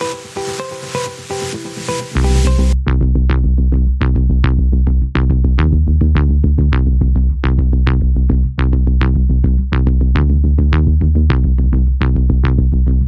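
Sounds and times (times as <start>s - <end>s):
electronic dance music: 0.0s - 2.8s.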